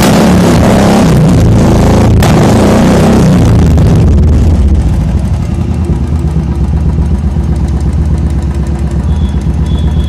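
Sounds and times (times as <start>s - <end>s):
motorcycle engine idling: 3.5s - 10.0s.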